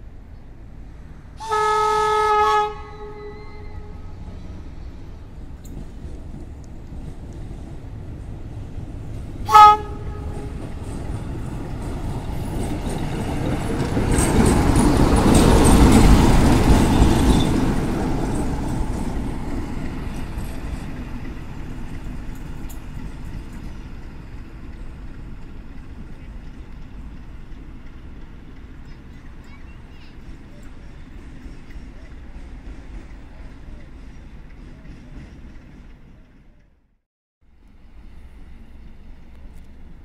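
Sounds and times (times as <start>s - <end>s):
locomotive diesel engine passing: 0.0s - 36.9s, 37.5s - 40.0s
locomotive horn toot: 1.4s - 4.2s, 9.5s - 10.6s.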